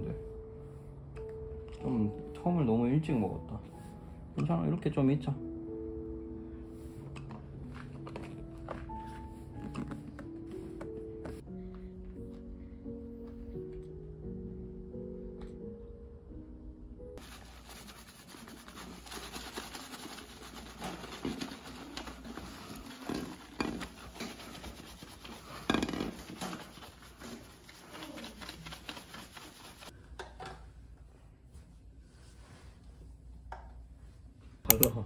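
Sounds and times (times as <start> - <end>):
fingers scrubbing lathered hair: 17.2 - 29.9.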